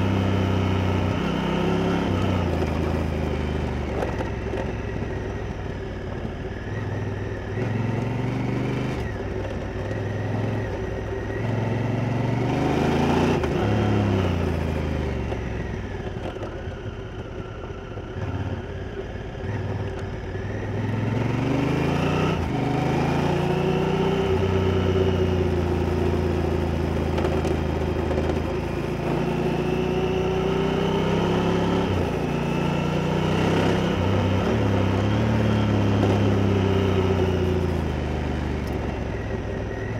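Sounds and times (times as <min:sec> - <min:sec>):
motorcycle engine revving and shifting: 0:00.0 - 0:39.9.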